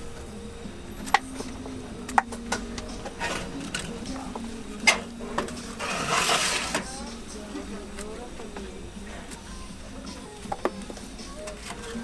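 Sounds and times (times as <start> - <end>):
low steady hum: 0.0 - 12.0
light scraping: 5.7 - 7.0.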